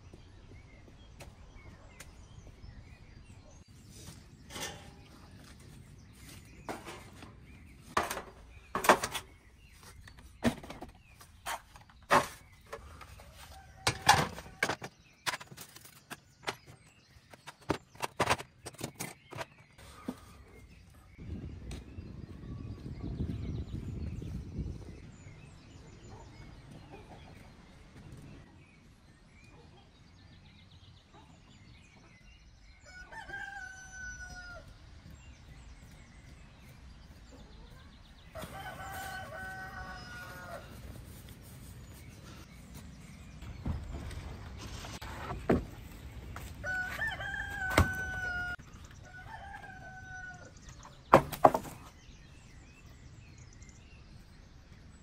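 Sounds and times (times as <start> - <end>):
rooster crowing: 32.8 - 34.7, 38.4 - 40.7, 46.6 - 50.5.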